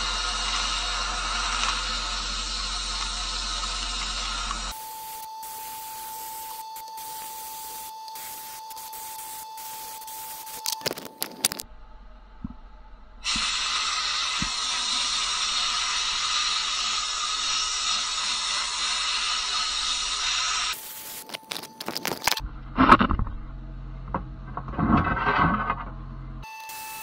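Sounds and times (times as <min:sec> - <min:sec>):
sandblasting gun hissing: 0:00.0 - 0:11.6, 0:13.2 - 0:22.4, 0:26.5 - 0:27.0.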